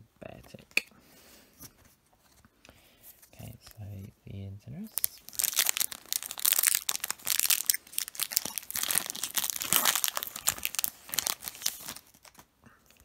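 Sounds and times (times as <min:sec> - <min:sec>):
foil wrapper tearing and crinkling: 0:04.9 - 0:12.5.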